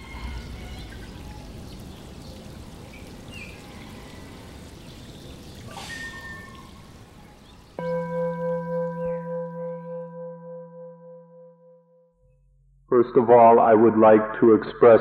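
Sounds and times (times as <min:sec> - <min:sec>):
trickling water: 0:00.0 - 0:09.8
faint high chirps: 0:07.8 - 0:12.7.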